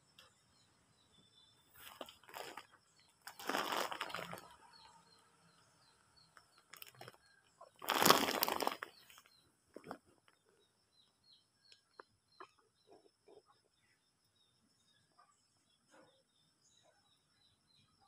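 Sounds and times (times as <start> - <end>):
small birds chirping: 0.0 - 18.0
rustling noise: 3.3 - 4.5, 7.8 - 10.0.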